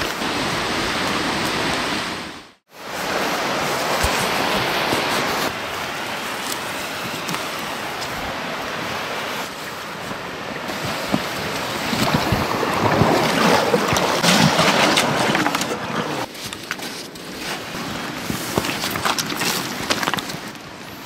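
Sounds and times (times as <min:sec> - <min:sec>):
river rushing: 0:00.0 - 0:16.3.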